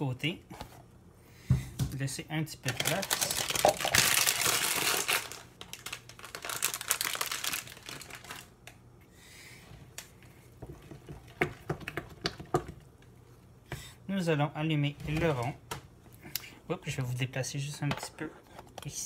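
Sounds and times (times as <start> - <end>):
crinkling and rustling: 2.6 - 8.8.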